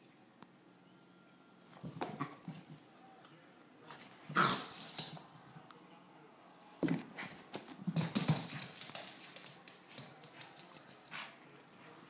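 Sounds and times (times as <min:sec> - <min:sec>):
dog claws clattering on wood floor: 0:07.8 - 0:10.9.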